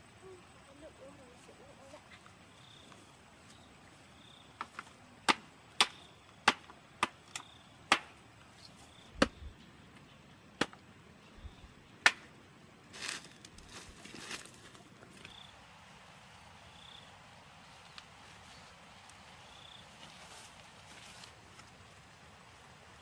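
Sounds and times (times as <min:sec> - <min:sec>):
machete chopping bamboo: 0:04.6 - 0:08.2, 0:10.6 - 0:10.8, 0:12.0 - 0:12.3.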